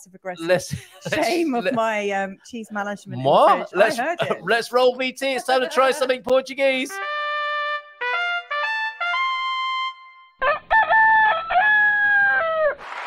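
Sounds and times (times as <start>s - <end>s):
rooster crowing: 10.4s - 12.8s.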